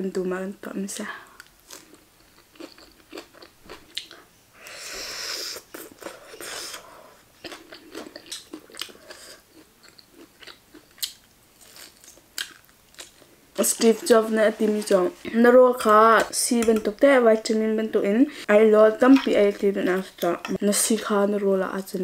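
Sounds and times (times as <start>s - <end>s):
chewing crunchy food: 1.4s - 4.3s, 7.4s - 15.3s.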